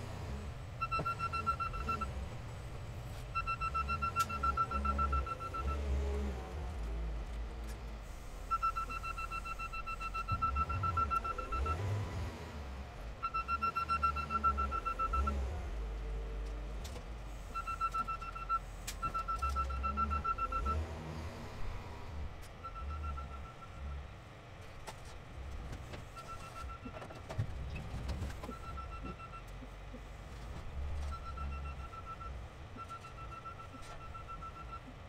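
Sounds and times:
diesel engine under load: 0.0 - 35.0
reverse alarm beeping: 0.8 - 2.1, 3.4 - 5.8, 8.4 - 11.9, 13.2 - 15.4, 22.6 - 24.0.

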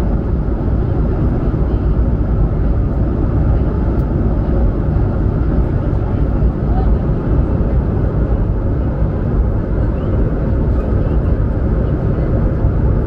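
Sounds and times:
aircraft cabin engine drone: 0.0 - 13.0.

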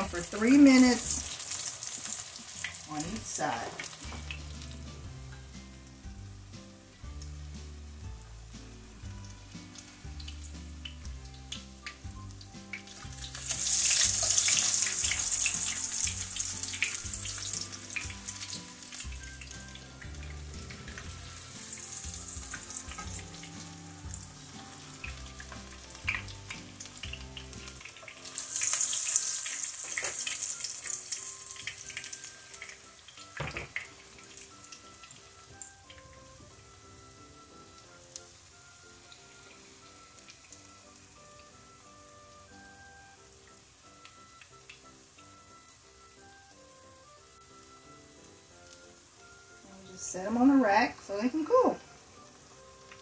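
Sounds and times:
background music: 0.0 - 53.0
fritters sizzling in oil: 0.0 - 53.0.

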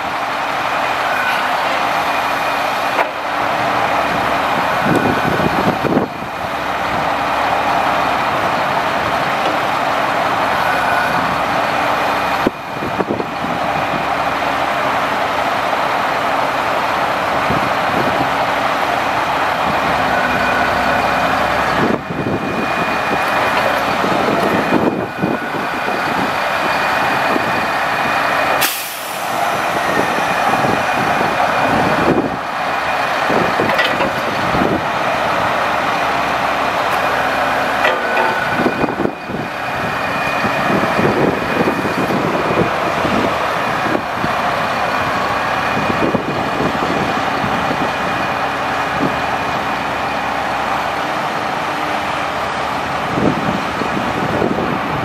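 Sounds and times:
diesel engine running: 0.0 - 55.0
hydraulic hiss: 28.6 - 29.9.

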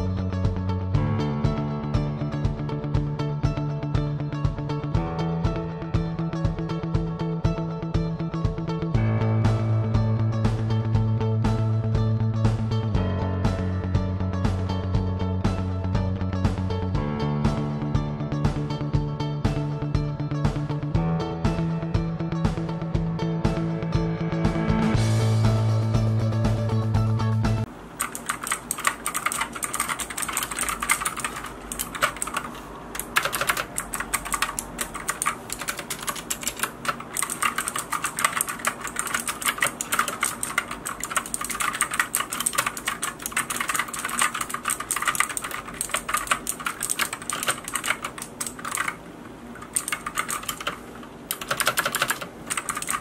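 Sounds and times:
mechanical keyboard typing: 28.0 - 49.0, 49.6 - 53.0.

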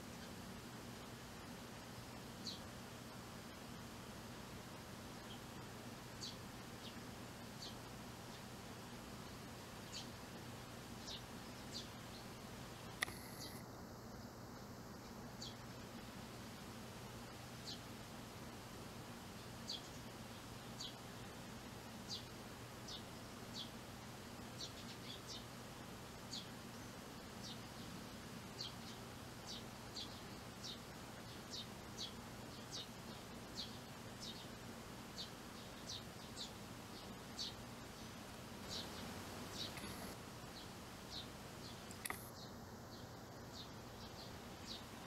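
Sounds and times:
faint low hum: 0.0 - 45.0
sparrow chirping: 35.2 - 44.9.

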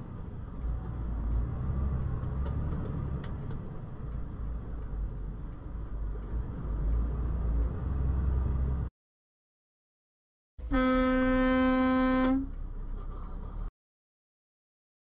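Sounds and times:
road noise: 0.0 - 8.9, 10.6 - 13.7
truck engine rumble: 0.0 - 8.9, 10.6 - 13.7.

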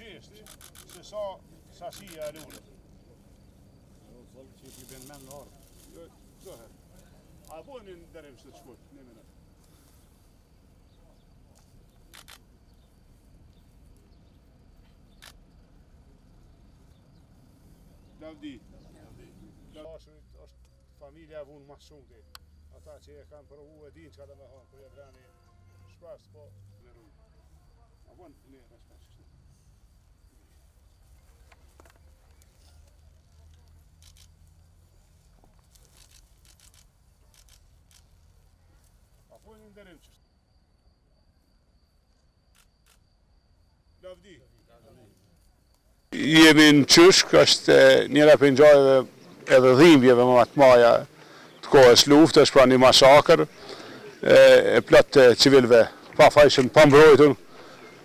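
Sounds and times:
sharp clicks: 0.4 - 1.2, 12.0 - 12.5, 15.1 - 15.4
soft rustles and clicks: 29.7 - 40.2.

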